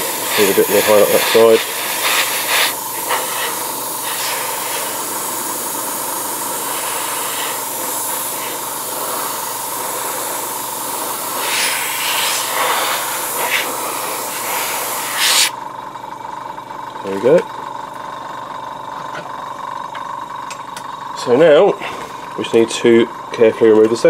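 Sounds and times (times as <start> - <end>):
airbrush hiss of compressed air: 0.0 - 15.6.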